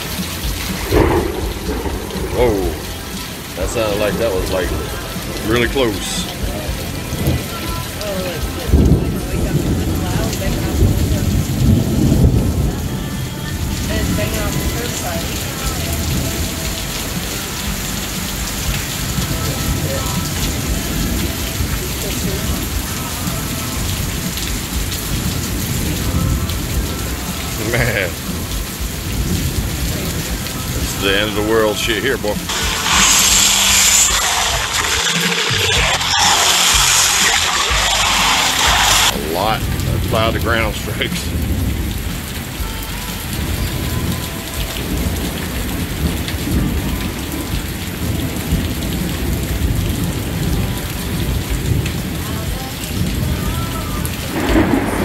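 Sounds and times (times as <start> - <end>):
low rumble of thunder: 0.0 - 5.0, 8.5 - 16.6, 52.9 - 55.0
thunder rumbling: 0.0 - 7.6, 8.2 - 17.9, 28.8 - 42.3, 53.0 - 55.0
heavy rain pouring: 0.0 - 55.0.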